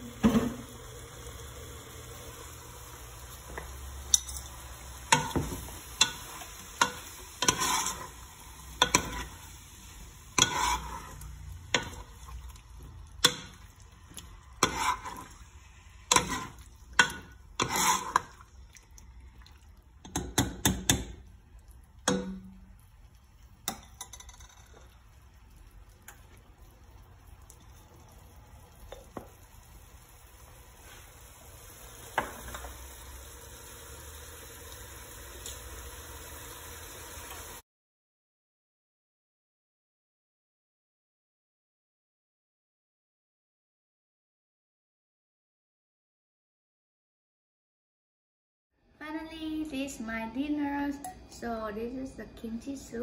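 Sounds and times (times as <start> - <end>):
low sizzle of frying: 0.0 - 37.6
metal ladle scraping a pot: 6.0 - 9.5, 10.3 - 12.4, 14.5 - 18.5.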